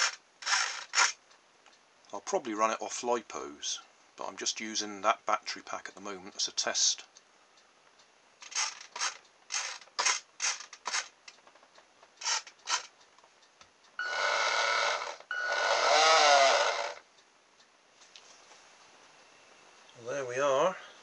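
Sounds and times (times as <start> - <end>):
electric motor whining: 14.0 - 17.0
short buzzes: 14.0 - 17.1.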